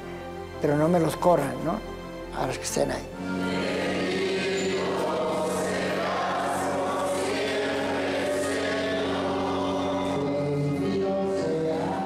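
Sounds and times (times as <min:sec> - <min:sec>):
choir singing held chords: 0:03.2 - 0:12.0.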